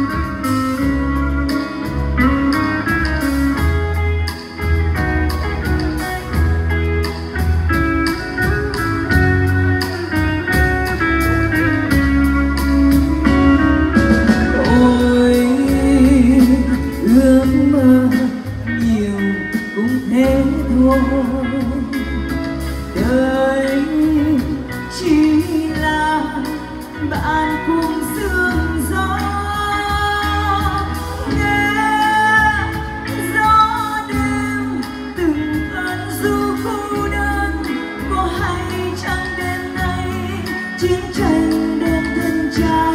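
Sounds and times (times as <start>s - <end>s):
live band playing: 0.0s - 42.9s
woman singing: 14.0s - 42.9s.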